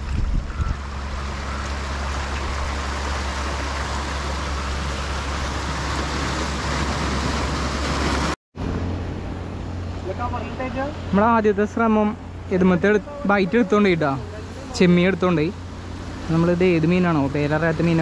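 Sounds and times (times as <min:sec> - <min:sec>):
constant low hum: 0:08.6 - 0:18.0.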